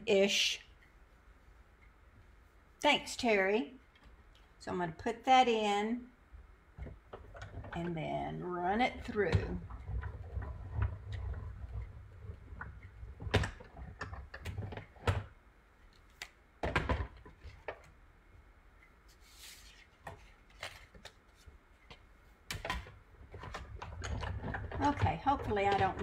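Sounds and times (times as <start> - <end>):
hand-cranked die-cutting machine clicking: 22.5 - 26.0.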